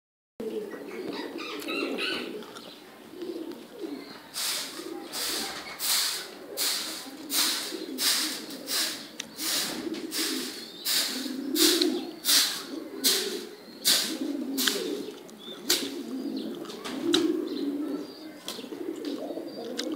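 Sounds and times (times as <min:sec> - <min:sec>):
pigeons cooing: 0:00.4 - 0:19.9
short rustling hisses: 0:04.3 - 0:15.0.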